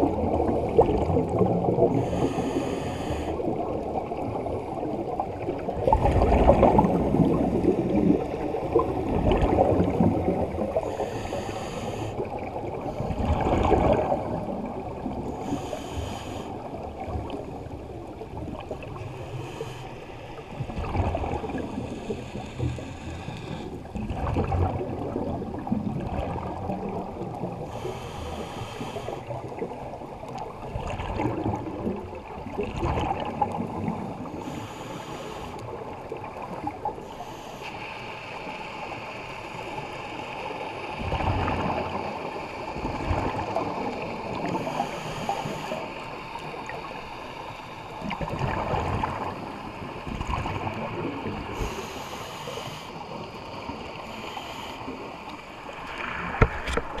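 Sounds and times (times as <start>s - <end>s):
regulator hissing inhale: 1.9s - 3.6s, 10.8s - 12.4s, 15.3s - 16.8s, 19.0s - 20.6s, 21.8s - 23.9s, 27.6s - 29.3s, 34.3s - 35.8s, 37.0s - 40.5s, 44.1s - 47.9s, 51.4s - 56.4s
bubbling exhale underwater: 5.2s - 10.9s, 13.0s - 15.1s.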